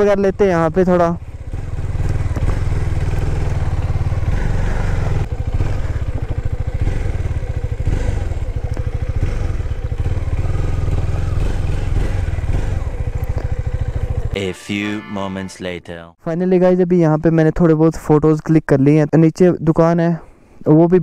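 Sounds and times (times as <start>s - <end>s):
motorcycle engine running: 0.0s - 14.4s.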